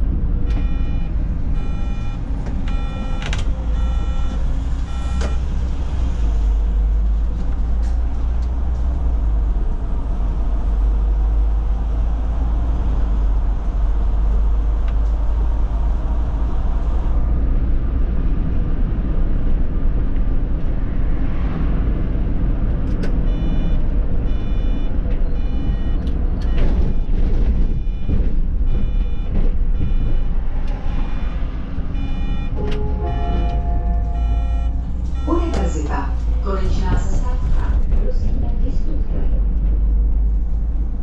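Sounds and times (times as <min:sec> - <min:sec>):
bus engine rumble: 0:00.0 - 0:41.0
repeated electronic beep: 0:00.5 - 0:05.5, 0:23.3 - 0:36.1.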